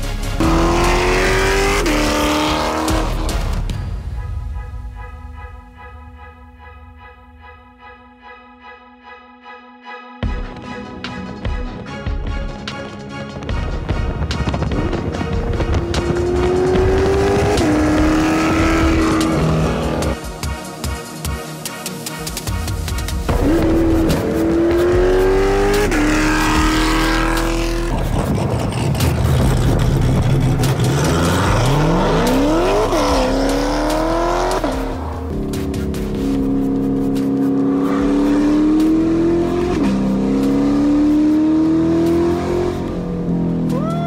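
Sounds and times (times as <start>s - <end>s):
car engine accelerating through gears: 0.4s - 3.6s, 14.5s - 20.2s, 23.3s - 43.9s.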